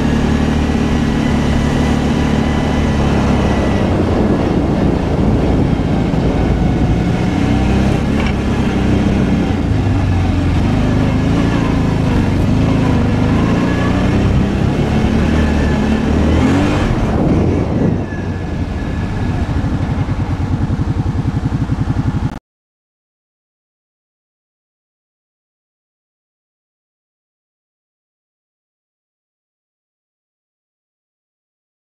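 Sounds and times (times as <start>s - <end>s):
atv engine running: 0.0s - 22.4s
wind noise: 0.0s - 22.4s.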